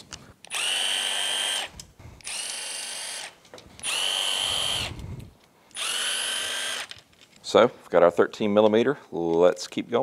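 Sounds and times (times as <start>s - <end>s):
cordless impact driver whining: 0.4s - 7.0s.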